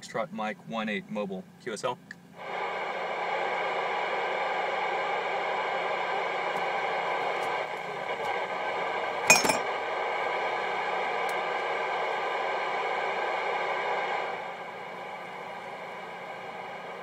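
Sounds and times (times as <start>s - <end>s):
radio speaker hissing: 2.4s - 17.0s
sharp clink: 9.3s - 9.6s.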